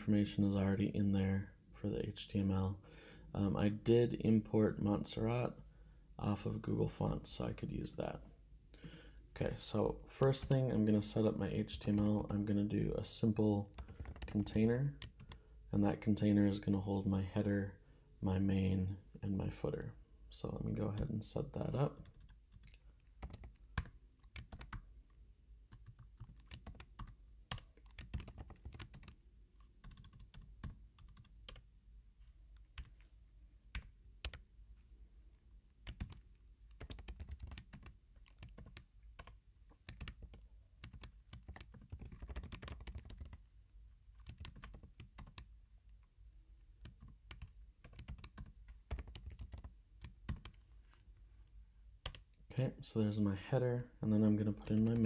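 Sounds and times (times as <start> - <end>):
keyboard typing: 13.7 - 15.4, 22.0 - 24.9, 25.7 - 31.7, 32.5 - 34.5, 35.8 - 43.5, 44.2 - 46.1, 46.8 - 50.6.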